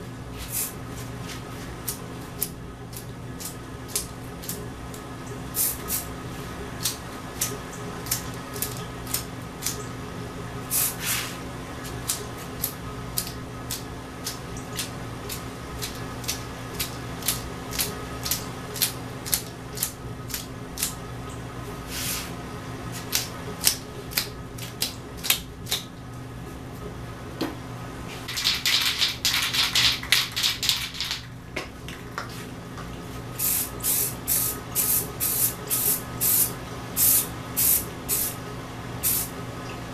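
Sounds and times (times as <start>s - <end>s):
aerosol spray can hissing: 33.4s - 38.4s, 39.0s - 39.3s.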